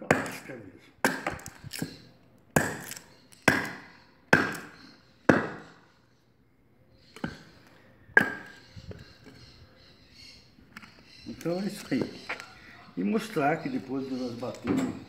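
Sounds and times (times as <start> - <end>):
knife chopping into wood: 0.0 - 2.0, 2.6 - 4.7, 5.3 - 5.7.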